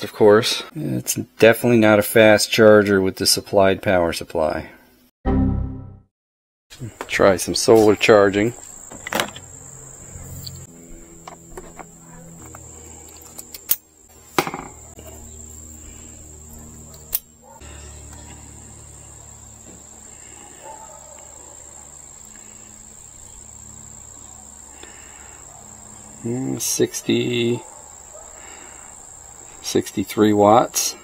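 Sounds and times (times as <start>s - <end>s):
high-pitched insect chorus: 7.2s - 31.0s.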